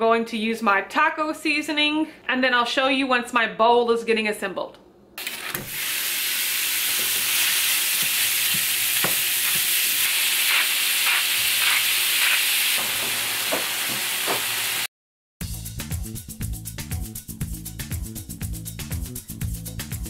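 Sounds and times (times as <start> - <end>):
meat sizzling in a skillet: 5.2 - 14.9.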